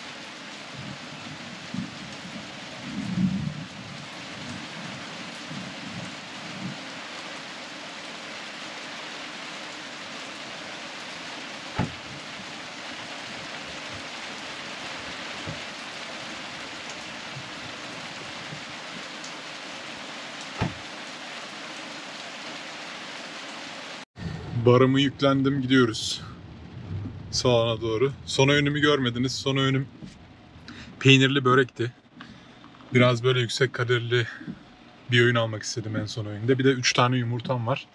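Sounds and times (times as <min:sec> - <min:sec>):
steady rain hiss: 0:00.0 - 0:37.9
low bumps: 0:11.6 - 0:15.8, 0:20.5 - 0:20.9, 0:24.3 - 0:31.2
sharp knocks: 0:11.7 - 0:12.2, 0:20.6 - 0:20.8.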